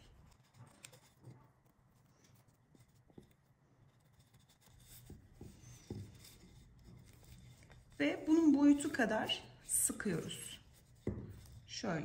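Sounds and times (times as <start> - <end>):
faint paper rustles: 0.0 - 11.8.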